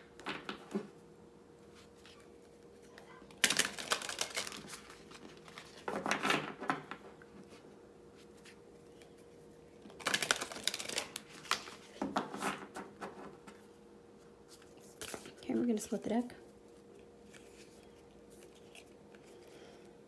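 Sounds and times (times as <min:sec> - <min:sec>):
cards being shuffled: 0:03.3 - 0:07.6, 0:09.8 - 0:13.6, 0:14.5 - 0:15.4, 0:17.2 - 0:19.5.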